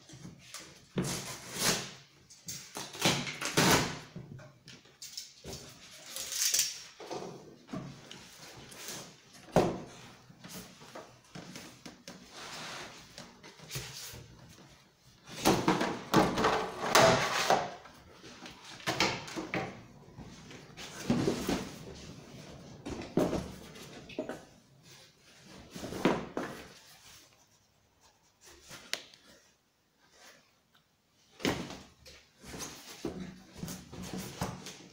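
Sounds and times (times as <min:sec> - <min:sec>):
cardboard flaps folded and scraped: 0:07.8 - 0:18.8, 0:20.2 - 0:24.0
cardboard rustling and scraping: 0:07.8 - 0:18.8, 0:20.2 - 0:24.0.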